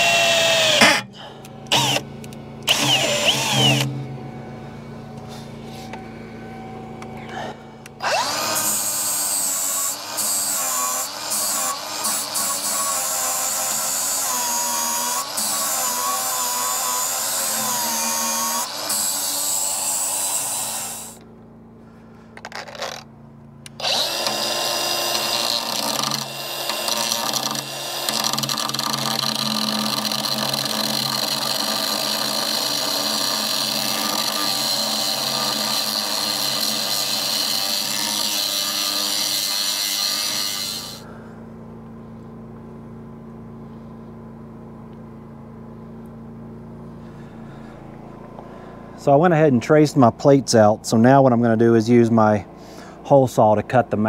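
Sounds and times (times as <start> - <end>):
angle grinder grinding steel: 0.0 - 4.1, 7.0 - 21.2, 22.4 - 41.1
low steady hum: 0.0 - 10.3, 12.1 - 38.4, 39.7 - 54.0.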